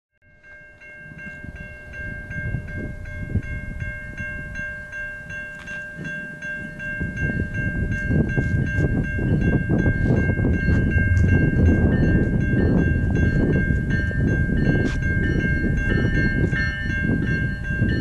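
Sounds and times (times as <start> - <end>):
level crossing bell ringing: 0.2 - 18.0
low rumbling noise: 6.7 - 18.0.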